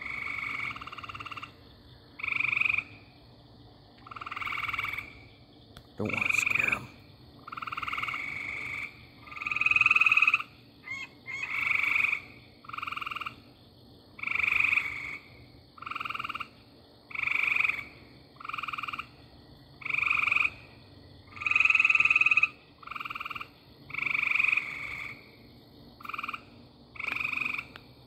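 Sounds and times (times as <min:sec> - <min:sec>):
frog calling in pulsed trills: 0:06.0 - 0:06.9.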